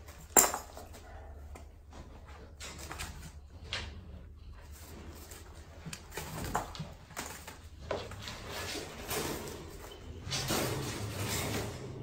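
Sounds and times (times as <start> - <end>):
puppies scrabbling on newspaper: 4.6 - 12.0.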